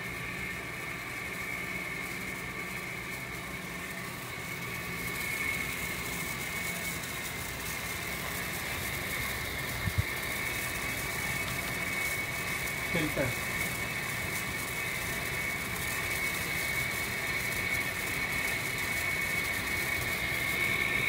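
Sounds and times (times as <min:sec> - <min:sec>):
fan unit mechanical hum: 0:00.0 - 0:21.0
thin high whine: 0:00.0 - 0:21.0.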